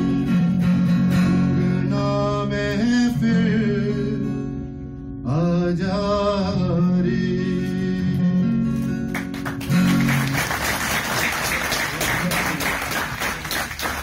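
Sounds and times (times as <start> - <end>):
acoustic guitar song: 0.0 - 14.0
audience applause: 9.2 - 14.0.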